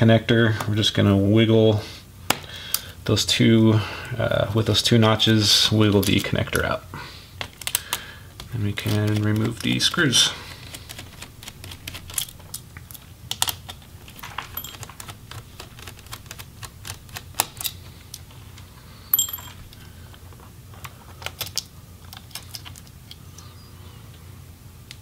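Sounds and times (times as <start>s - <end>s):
sharp metallic click with ring: 19.2s - 19.6s.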